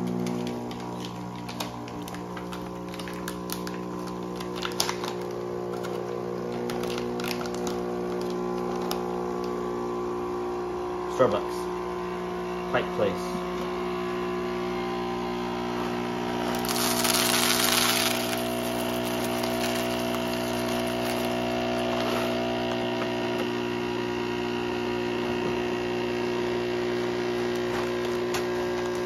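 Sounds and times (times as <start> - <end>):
espresso machine pump buzzing: 0.0 - 29.0
coffee beans rattling: 16.4 - 22.0.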